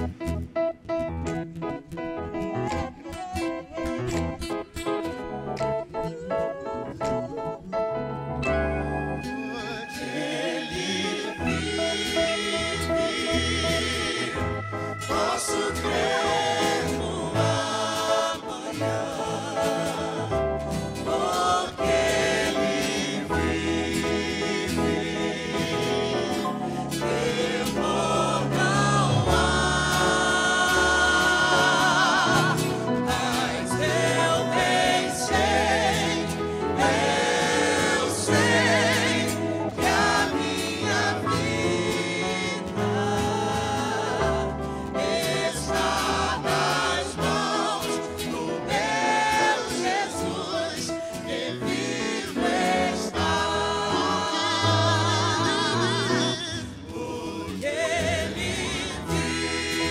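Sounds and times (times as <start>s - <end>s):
acoustic guitar: 0.0s - 59.9s
keyboard: 0.0s - 59.9s
mixed group singing hymn in harmony: 8.8s - 59.9s.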